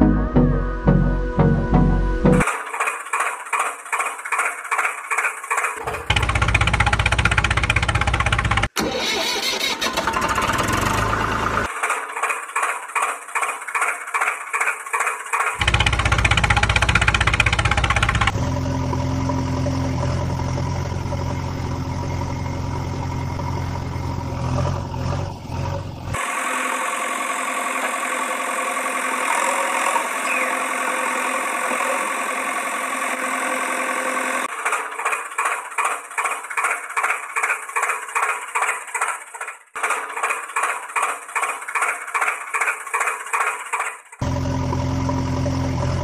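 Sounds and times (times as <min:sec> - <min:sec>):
tractor engine running: 0:01.7 - 0:46.0
rhythmic engine chugging: 0:02.3 - 0:08.8, 0:11.6 - 0:23.5, 0:34.4 - 0:45.2.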